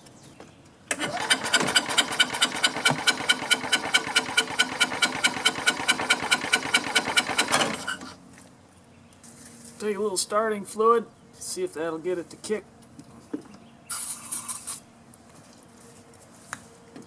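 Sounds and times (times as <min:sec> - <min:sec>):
engine cranking on starter: 0:00.9 - 0:08.2.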